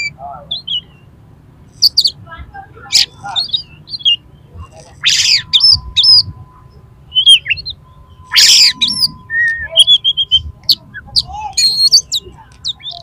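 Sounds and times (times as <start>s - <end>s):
bird harsh calls: 0.0s - 2.2s, 2.8s - 6.3s, 7.1s - 13.0s
bird whistled notes: 4.8s - 13.0s.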